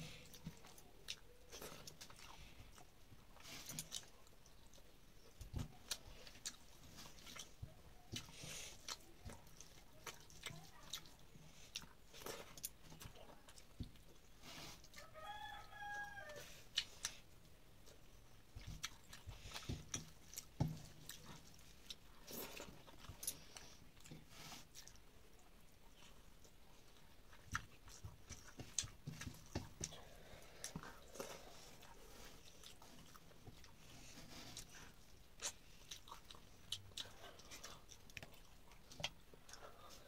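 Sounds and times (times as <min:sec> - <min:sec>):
wet chewing and lip smacks: 0:00.1 - 0:40.0.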